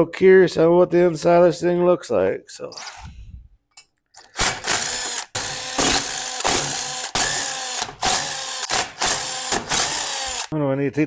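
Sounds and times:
cordless drill running: 4.4 - 10.5.

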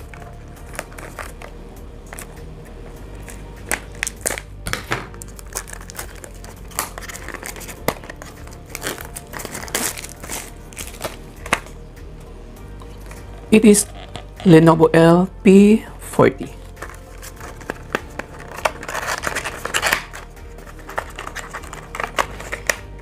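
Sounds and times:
packaging crackling and rustling: 0.0 - 1.5, 5.1 - 11.8, 16.8 - 23.0.

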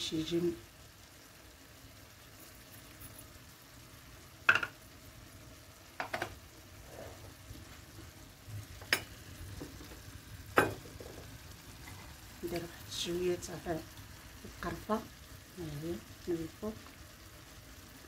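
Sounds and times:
food sizzling in a clay pot: 0.0 - 18.0.

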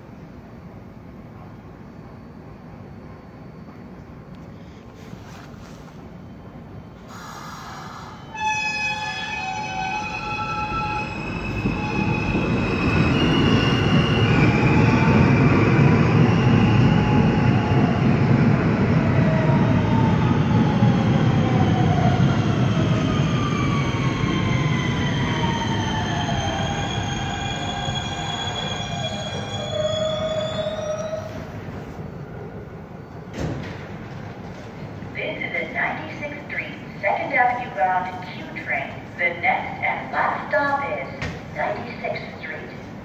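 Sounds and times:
train braking whine: 1.7 - 32.3.

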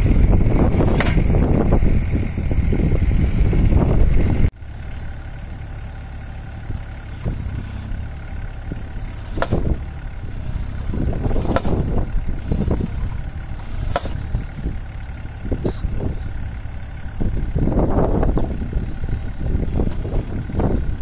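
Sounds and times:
diesel engine running: 0.0 - 21.0
post driver impacts: 0.8 - 1.5, 8.6 - 14.7.

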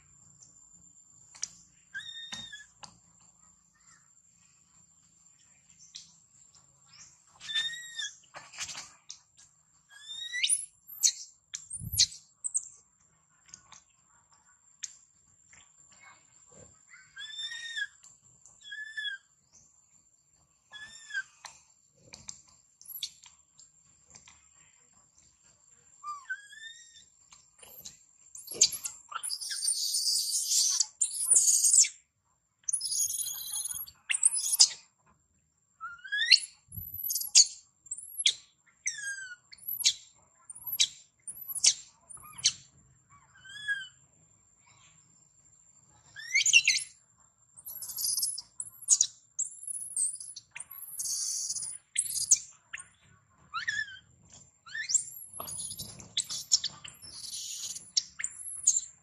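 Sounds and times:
baby monkey screaming: 1.9 - 2.8, 7.4 - 8.2, 17.1 - 18.0, 18.6 - 19.3, 20.7 - 21.3, 28.5 - 31.8, 43.4 - 44.0, 53.6 - 54.1, 54.7 - 58.8.

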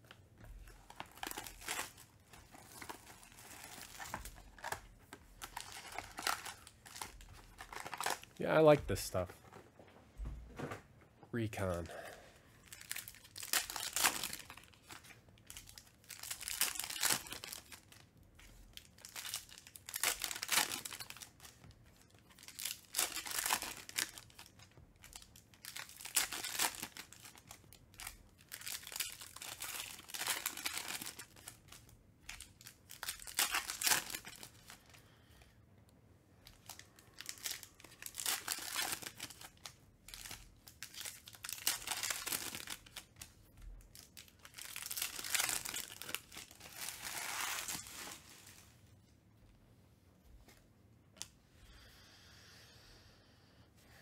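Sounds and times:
foil wrappers tearing and crinkling: 0.7 - 8.4, 12.6 - 18.0, 18.7 - 34.8, 36.4 - 43.3, 43.9 - 48.6.

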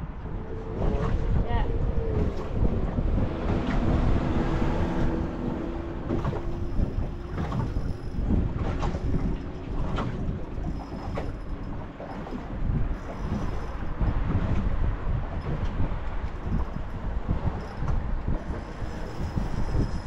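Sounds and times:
low rumble: 0.0 - 20.0
wind buffeting microphone: 0.0 - 20.0.

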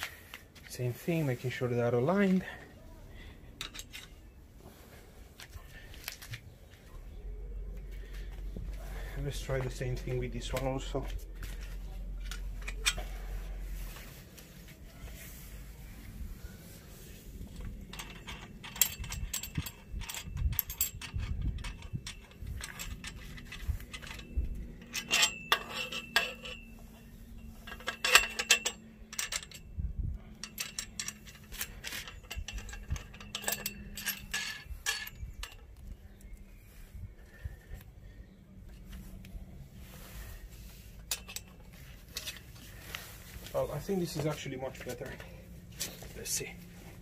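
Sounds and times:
metal clicking and rattling: 3.6 - 4.2, 9.2 - 13.3, 17.4 - 36.3, 40.9 - 47.0
ringing metal clinks: 17.9 - 35.7.

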